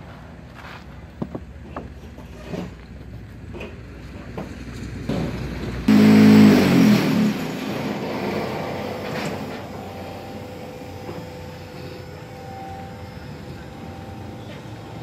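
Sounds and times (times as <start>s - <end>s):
vehicle passing close: 5.3s - 10.2s
steady background hum: 5.9s - 15.0s.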